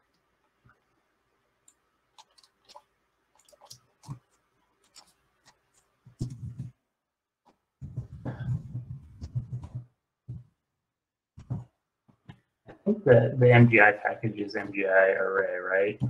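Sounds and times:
keyboard and mouse clicks: 1.7s - 6.7s.

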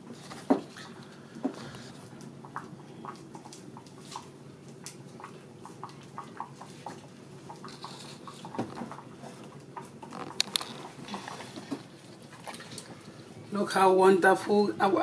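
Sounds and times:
soup boiling with bubbling pops: 2.2s - 11.0s.

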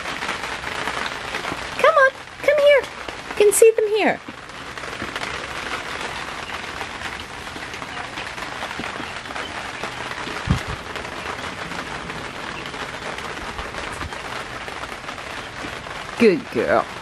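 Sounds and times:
rain pattering on a tarp: 0.0s - 17.0s
short low thud: 10.4s - 10.8s.

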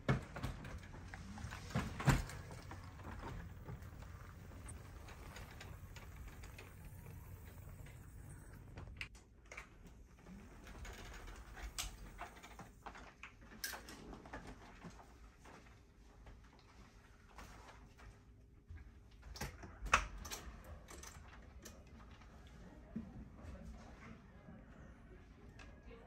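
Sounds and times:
faint electric drive hum: 0.0s - 14.3s.

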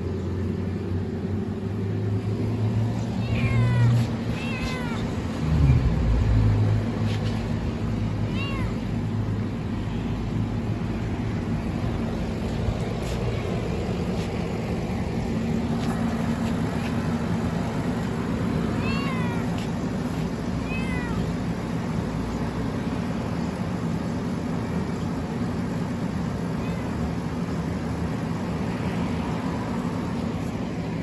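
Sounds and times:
cat meowing: 3.2s - 5.9s, 8.2s - 9.0s, 18.8s - 19.6s, 20.6s - 21.4s, 26.6s - 27.0s.

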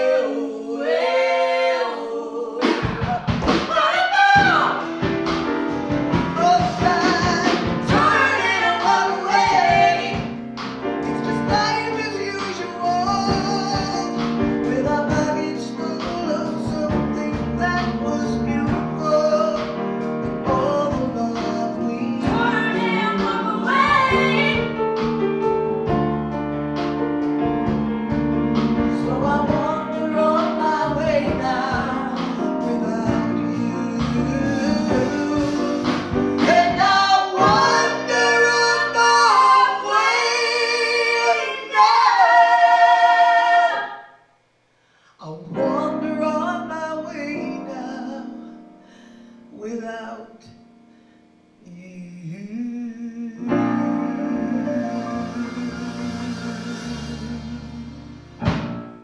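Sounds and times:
people singing: 0.0s - 4.9s, 6.3s - 18.8s, 20.5s - 24.8s, 29.0s - 44.2s
piano: 0.0s - 59.0s
drums: 2.6s - 42.4s, 53.5s - 59.0s
upright bass: 4.4s - 39.2s, 53.5s - 59.0s.

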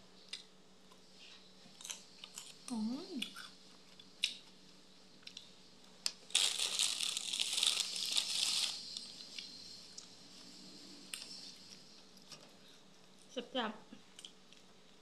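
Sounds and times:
plastic wrapping crinkling: 6.3s - 8.9s.

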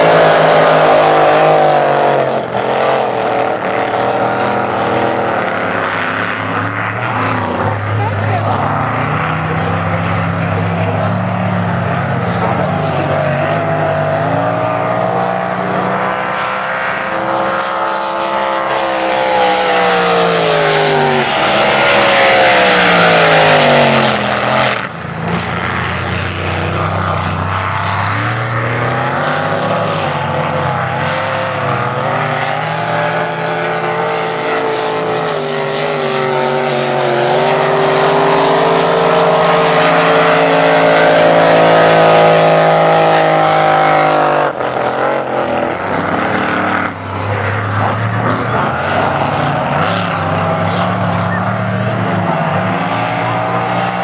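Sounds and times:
powerboat engines running hard: 29.3s - 44.0s.

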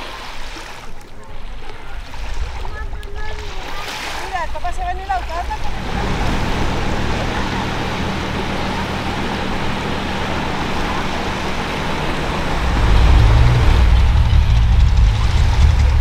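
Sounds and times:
motorboat engine drone: 4.7s - 16.0s.

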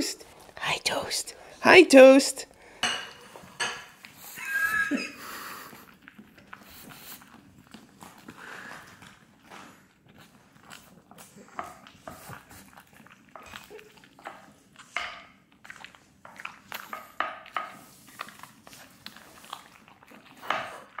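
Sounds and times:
dog chewing crunchy bread: 5.2s - 21.0s.

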